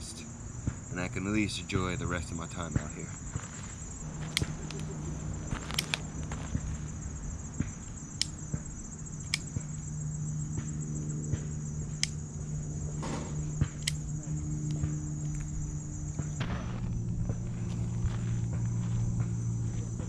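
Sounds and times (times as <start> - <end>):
insects chirring: 0.0 - 20.0
low steady hum: 0.0 - 20.0
sharp ticks: 4.2 - 5.0, 5.6 - 6.3, 8.1 - 8.5, 9.2 - 9.8, 11.8 - 12.2, 13.6 - 16.4.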